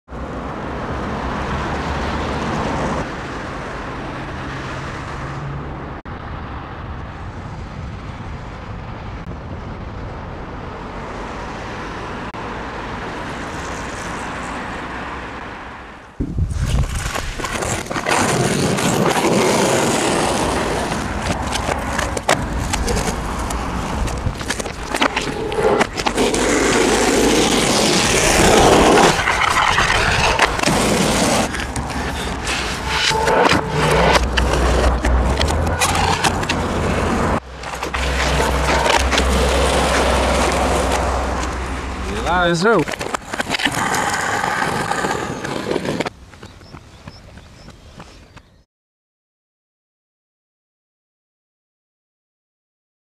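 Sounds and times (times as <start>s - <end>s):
skateboard wheels rolling on asphalt: 0.1s - 48.6s
skateboard clacks and scrapes: 16.4s - 48.4s.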